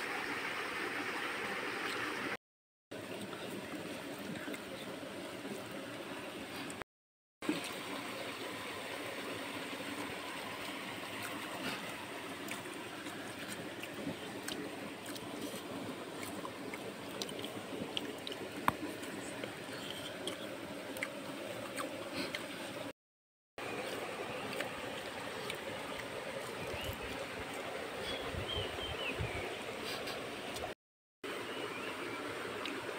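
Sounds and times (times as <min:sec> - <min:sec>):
flowing water: 0:00.0 - 0:06.8, 0:07.4 - 0:23.0, 0:23.6 - 0:32.9
faint clicks of hands mixing food: 0:03.1 - 0:05.6, 0:10.6 - 0:22.8.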